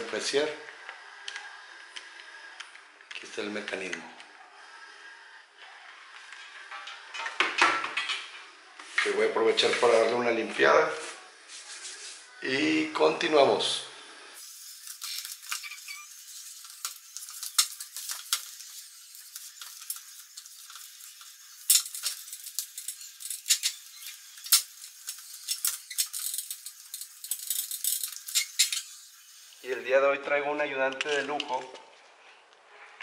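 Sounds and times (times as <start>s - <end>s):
sharp clicks and crinkles: 14.7s - 29.0s.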